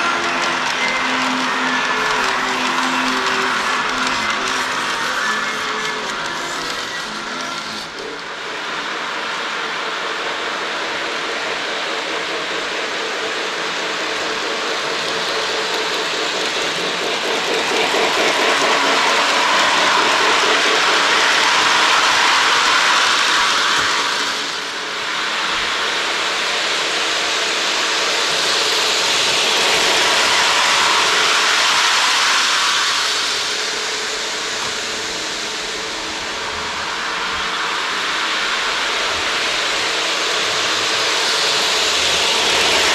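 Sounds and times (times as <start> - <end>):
model train wheels rumbling on rails: 0.0 - 42.9.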